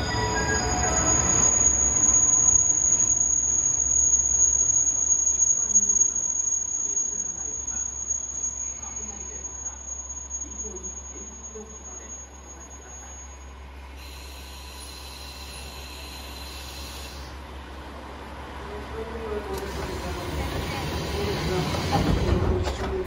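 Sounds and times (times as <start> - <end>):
train brakes squealing: 0.0 - 17.4, 19.5 - 23.0.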